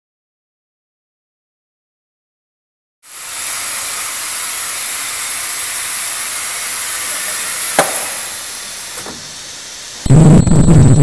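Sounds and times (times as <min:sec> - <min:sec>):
ultrasonic welder high-pitched hiss: 0:03.1 - 0:11.0.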